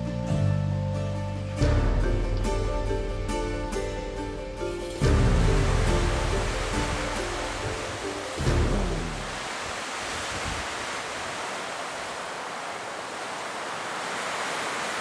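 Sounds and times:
sea surf washing: 4.7s - 15.0s.

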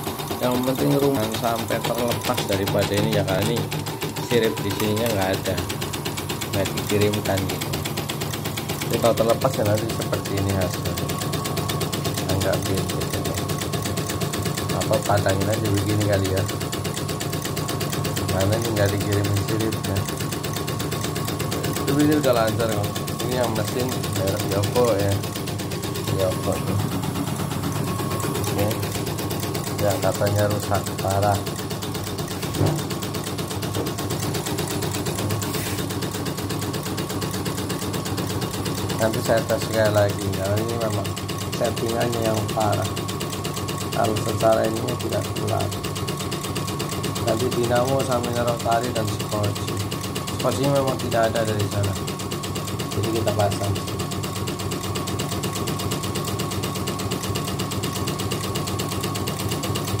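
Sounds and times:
embroidery machine clatter: 0.0s - 60.0s
low motor hum: 21.3s - 36.2s.

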